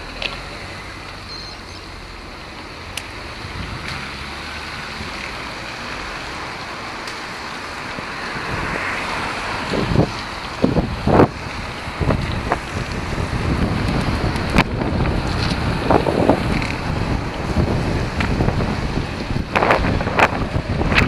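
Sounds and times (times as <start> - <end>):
traffic: 0.0 - 21.0
tyre noise on wet road: 0.0 - 21.0
wind on microphone: 3.4 - 4.0, 7.9 - 21.0.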